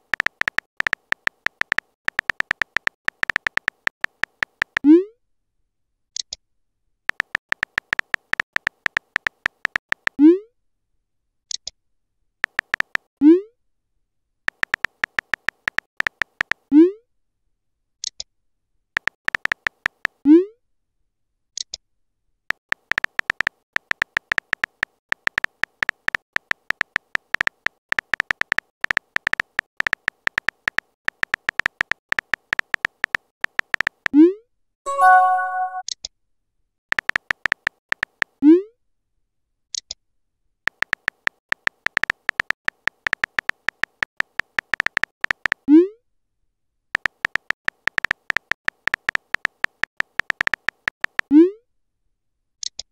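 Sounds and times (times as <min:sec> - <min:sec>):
keyboard tap clicks: 0:00.0 - 0:04.8, 0:12.4 - 0:13.1, 0:22.7 - 0:34.0, 0:40.7 - 0:45.6, 0:47.0 - 0:51.3
brief high blips: 0:34.9 - 0:35.8.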